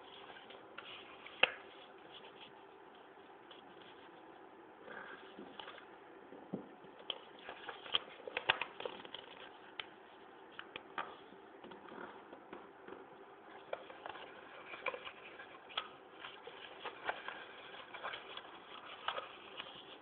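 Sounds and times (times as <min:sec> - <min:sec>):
paper being folded and creased: 0:07.1 - 0:09.8, 0:13.5 - 0:20.0.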